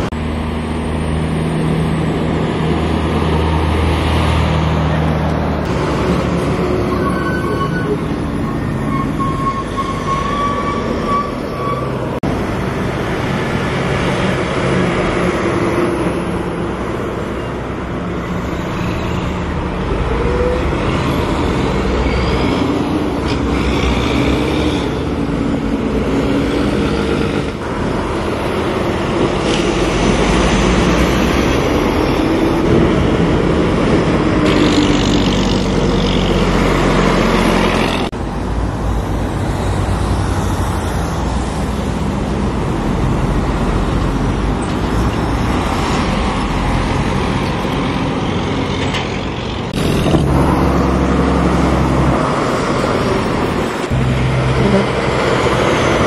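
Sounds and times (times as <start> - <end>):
trucks and cars driving past: 0.0 - 56.0
tyre noise on road: 0.0 - 56.0.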